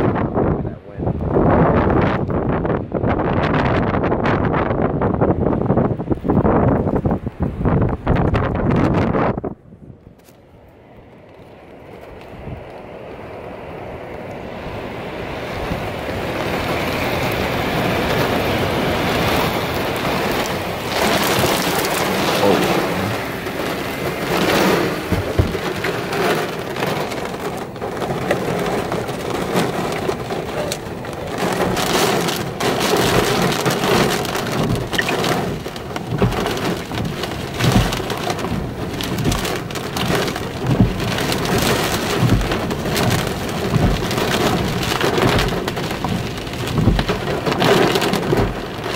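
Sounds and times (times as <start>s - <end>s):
heavy rain pelting vehicle glass: 13.9s - 48.9s
deep thuds: 20.8s - 30.3s, 31.4s - 48.7s.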